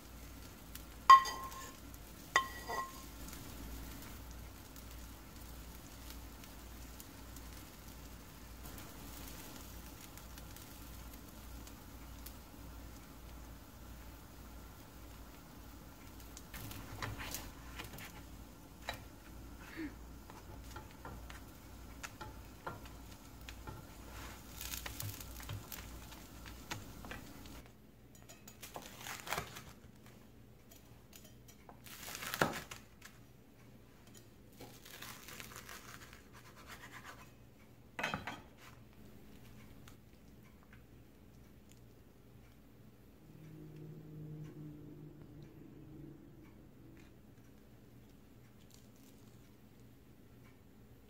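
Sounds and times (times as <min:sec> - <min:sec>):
steady low hum: 0:36.4 - 0:48.6.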